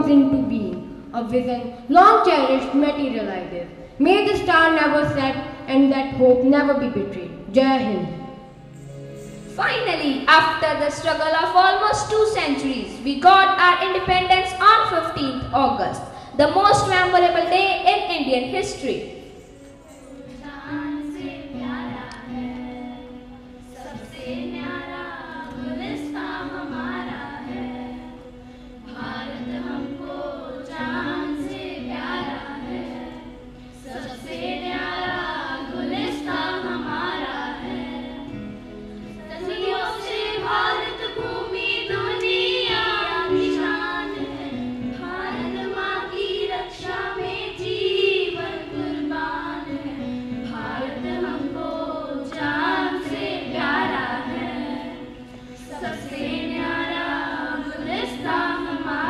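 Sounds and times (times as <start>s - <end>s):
children singing into microphones: 16.1s - 59.0s.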